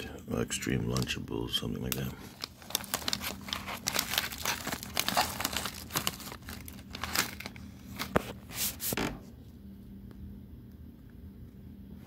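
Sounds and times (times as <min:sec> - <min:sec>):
plastic snack bag crinkling: 0:00.6 - 0:08.5.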